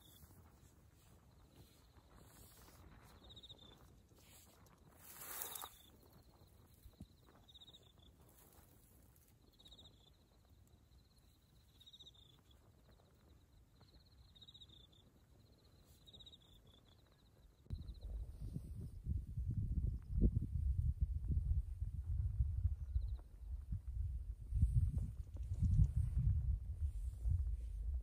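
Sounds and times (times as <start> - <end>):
insect chirping trills: 1.2 - 18.1.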